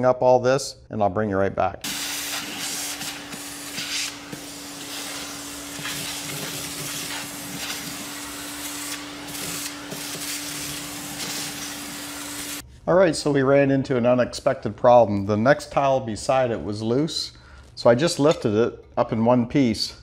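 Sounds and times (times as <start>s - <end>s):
vacuum cleaner running: 1.8s - 12.6s.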